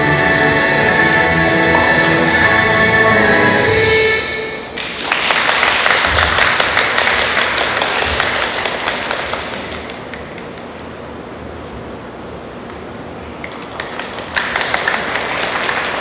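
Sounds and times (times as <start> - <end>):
music: 0.0 - 4.8
audience applause: 4.7 - 10.6, 13.5 - 16.0.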